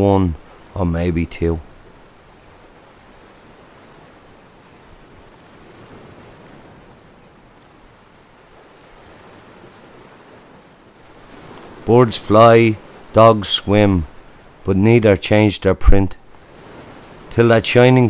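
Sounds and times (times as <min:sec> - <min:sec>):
gentle surf on beach: 0:00.0 - 0:18.0
high bird peeps: 0:05.2 - 0:08.3.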